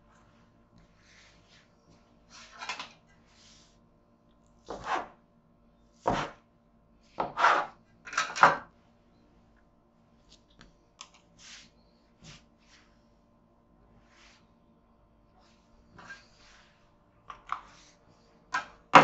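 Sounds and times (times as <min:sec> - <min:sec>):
knife cutting dough on wood: 0:04.7 - 0:05.2, 0:06.0 - 0:06.4.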